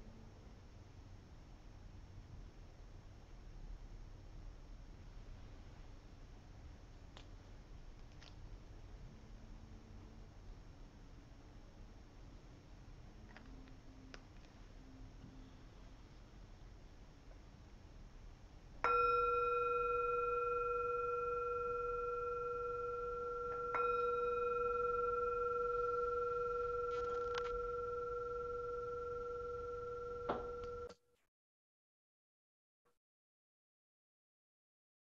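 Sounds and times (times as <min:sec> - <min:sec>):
meditation bell bowl ringing: 0:18.8 - 0:30.9.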